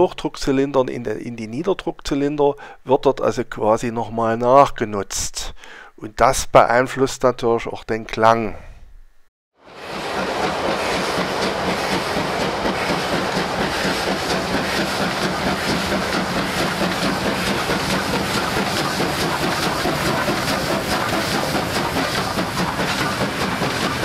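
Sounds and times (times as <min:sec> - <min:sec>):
steam locomotive exhaust beats: 0:09.6 - 0:24.0
wheels clattering on rail: 0:09.7 - 0:24.0.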